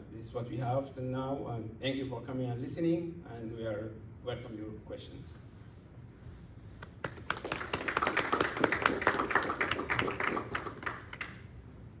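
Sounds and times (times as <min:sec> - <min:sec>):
small audience applauding: 0:06.8 - 0:11.6.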